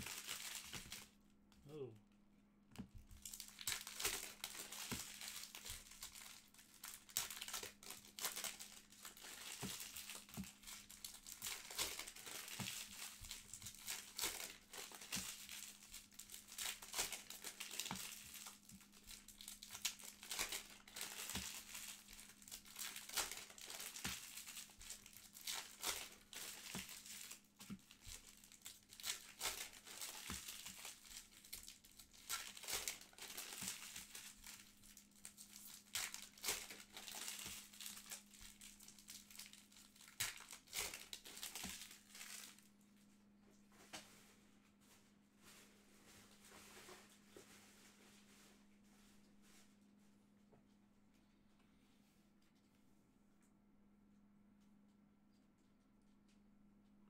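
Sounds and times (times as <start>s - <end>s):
foil wrappers tearing and crinkling: 0.0s - 1.1s, 3.1s - 42.7s
faint steady hum: 0.0s - 57.0s.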